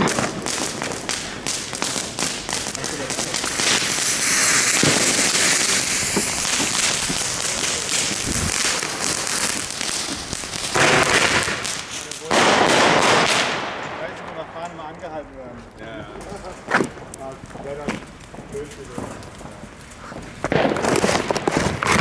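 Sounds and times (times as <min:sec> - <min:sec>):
firework bang: 0:00.0 - 0:14.6, 0:20.4 - 0:22.0
firework fuses hissing and crackling: 0:00.0 - 0:22.0.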